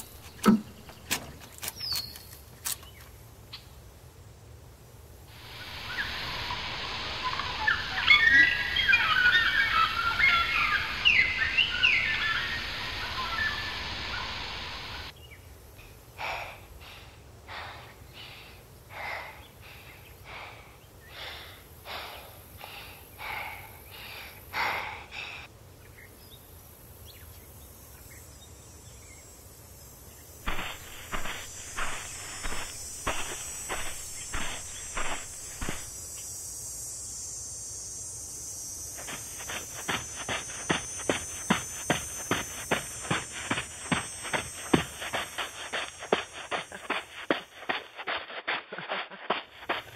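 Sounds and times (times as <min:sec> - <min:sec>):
footsteps: 0:00.0 - 0:02.8, 0:30.4 - 0:36.0, 0:39.0 - 0:49.9
birds chirping: 0:00.0 - 0:03.7, 0:05.4 - 0:15.5, 0:30.0 - 0:36.2, 0:38.8 - 0:48.2
steady hiss: 0:00.0 - 0:49.9.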